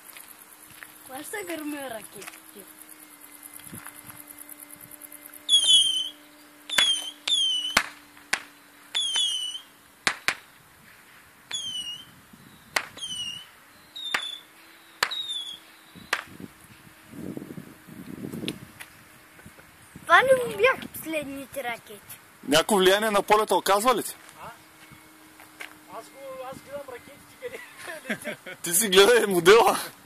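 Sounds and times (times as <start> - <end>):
rockets whistling: 0.9 - 29.8
sharp cracks: 5.5 - 10.6, 12.7 - 16.4.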